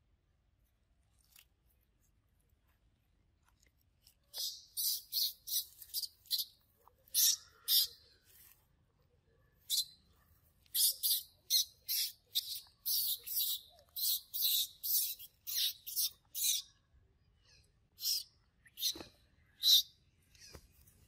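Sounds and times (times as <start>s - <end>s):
bird chirping: 4.3s - 8.2s, 9.5s - 20.7s.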